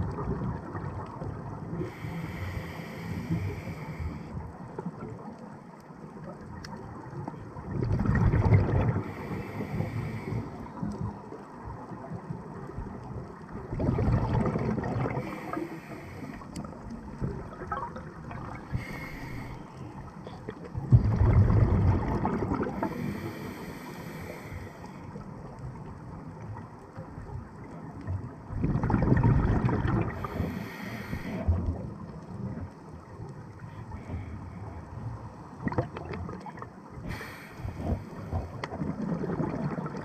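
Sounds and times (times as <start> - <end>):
low underwater rumble: 0.0 - 40.0
high hiss of inhalation: 1.9 - 4.3, 18.7 - 19.6, 22.8 - 24.9, 30.2 - 31.4
regulator bubbles rushing: 7.6 - 9.1, 13.6 - 15.6, 16.7 - 18.9, 20.8 - 22.9, 28.5 - 30.3, 38.4 - 40.0.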